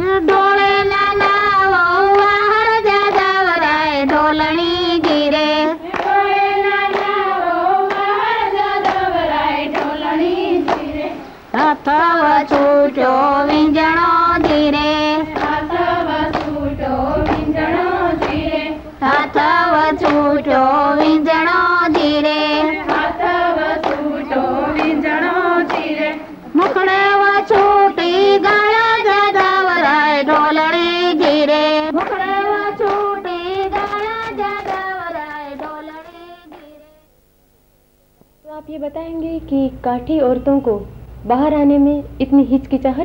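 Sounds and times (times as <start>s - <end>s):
women singing folk song: 0.0s - 37.1s
hand claps: 0.2s - 7.2s, 7.8s - 9.1s, 9.7s - 10.0s, 10.6s - 11.0s, 11.8s - 16.6s, 17.2s - 17.6s, 18.2s - 24.1s, 24.7s - 37.0s.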